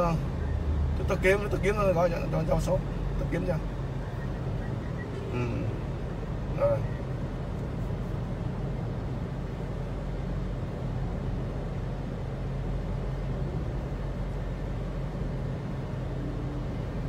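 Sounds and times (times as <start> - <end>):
vehicle engine drone: 0.0 - 17.0.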